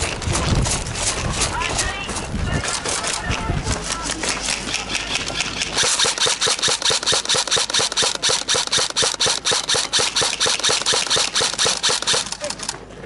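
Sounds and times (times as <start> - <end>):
airsoft gun firing: 5.6 - 12.5.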